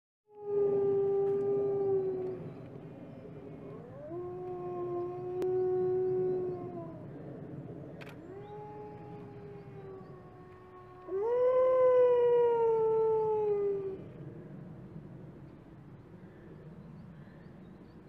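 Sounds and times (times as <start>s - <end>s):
wolves howling: 0.3s - 2.6s, 3.6s - 7.2s, 8.1s - 14.1s.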